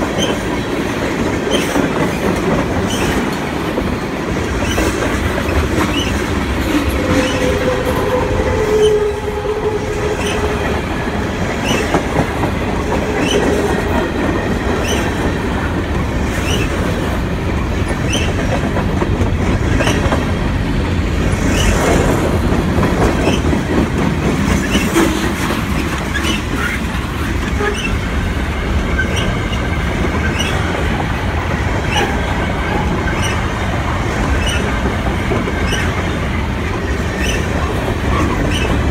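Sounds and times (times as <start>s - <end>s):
freight train rumbling past: 0.0s - 38.9s
wheels squealing on rail: 1.5s - 3.3s, 4.6s - 15.4s, 16.3s - 16.9s, 17.9s - 18.6s, 21.5s - 22.0s, 23.0s - 23.8s, 24.5s - 28.1s, 28.8s - 31.0s, 31.8s - 38.9s.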